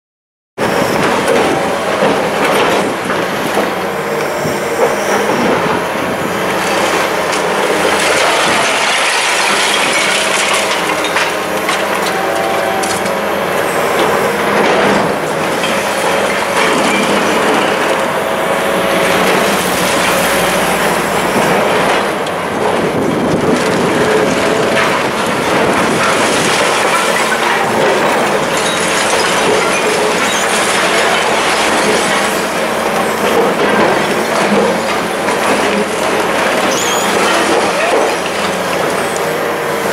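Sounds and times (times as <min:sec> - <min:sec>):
machine engine running: 0:00.6 - 0:39.9
concrete crunching and grinding: 0:00.7 - 0:39.9
falling rubble knocks: 0:07.2 - 0:13.2, 0:19.1 - 0:38.9
metallic squeals: 0:36.7 - 0:37.5.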